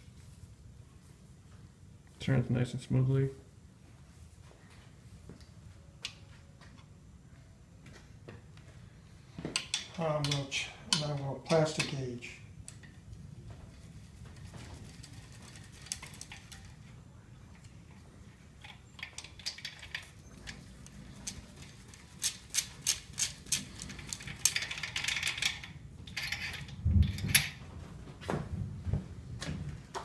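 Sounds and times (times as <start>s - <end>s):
metallic clatter: 13.7s - 16.9s.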